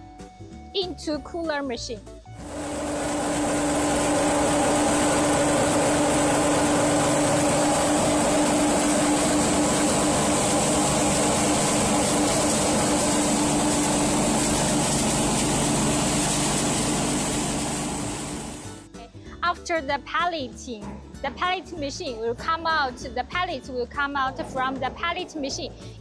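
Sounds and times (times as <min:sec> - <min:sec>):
pellet mill machine humming: 0:02.4 - 0:18.9.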